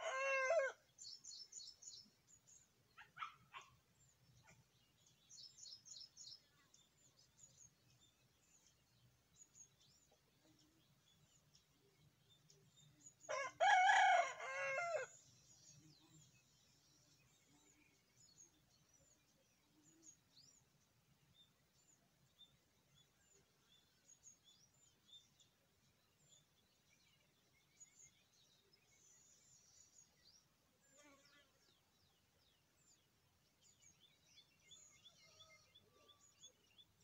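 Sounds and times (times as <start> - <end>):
rooster crowing: 0.0 - 0.8, 13.3 - 15.1
small birds chirping: 0.0 - 37.0.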